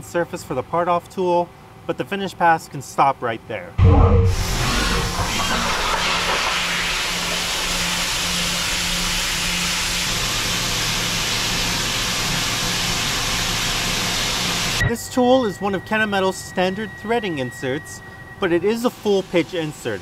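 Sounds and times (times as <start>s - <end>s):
low hum: 3.8s - 11.5s
lathe running with wide hiss: 4.4s - 20.0s.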